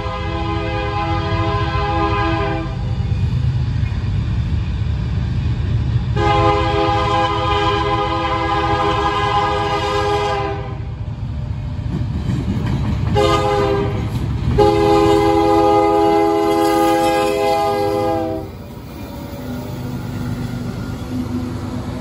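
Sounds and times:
locomotive air horn blasts: 0.0 - 2.8, 6.2 - 10.9, 13.2 - 14.0, 14.6 - 18.6
freight train rumbling past: 0.0 - 22.0.

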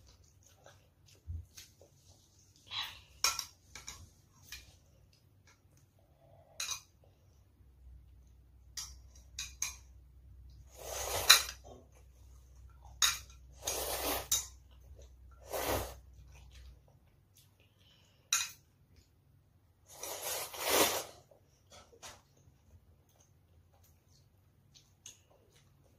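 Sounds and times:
slurping noodles: 10.7 - 11.4, 13.6 - 14.3, 15.4 - 16.0, 19.9 - 21.2.

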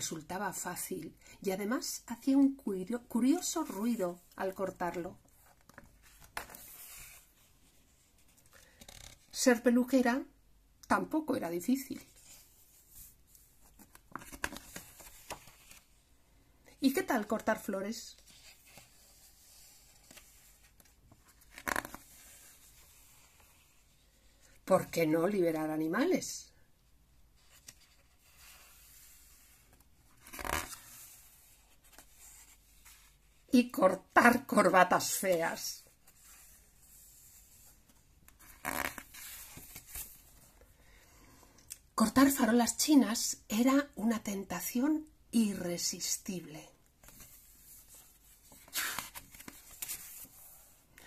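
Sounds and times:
book page turning: 12.1 - 16.0, 18.2 - 23.8, 27.4 - 33.2, 36.0 - 40.5, 47.0 - 50.8.

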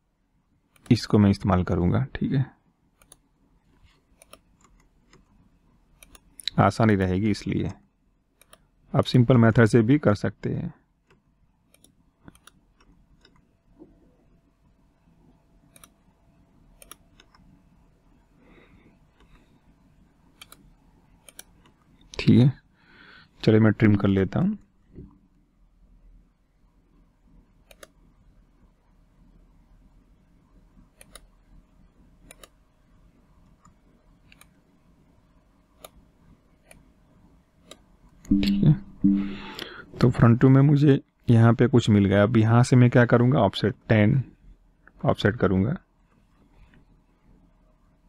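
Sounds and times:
low steady hum: 0.0 - 48.0
room hiss: 0.0 - 48.0
computer mouse clicks: 0.7 - 1.0, 3.0 - 6.6, 8.4 - 8.7, 11.0 - 13.5, 15.7 - 16.0, 16.8 - 17.6, 19.1 - 19.5, 20.3 - 22.2, 27.6 - 28.0, 30.9 - 31.4, 32.2 - 32.6, 33.4 - 34.6, 35.8 - 36.9, 37.6 - 39.6.

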